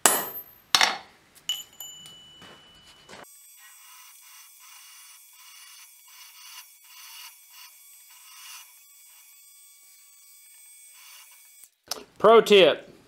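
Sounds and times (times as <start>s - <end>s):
drill bit cutting steel: 3.3s - 11.8s.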